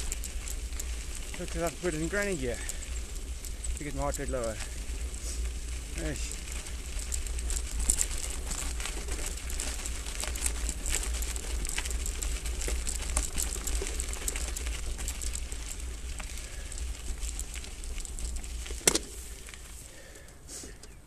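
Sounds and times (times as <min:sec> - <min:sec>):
bike tyres crunching over gravel: 0:00.0 - 0:21.0.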